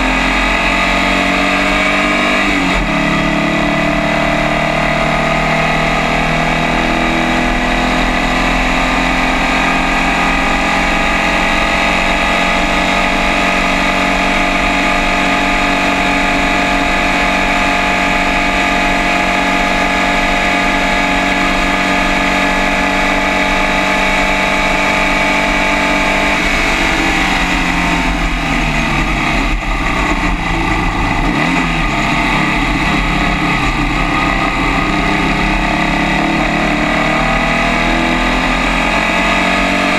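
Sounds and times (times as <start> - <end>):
race car engine at high revs: 0.0 - 39.9
wind rushing: 23.8 - 36.7.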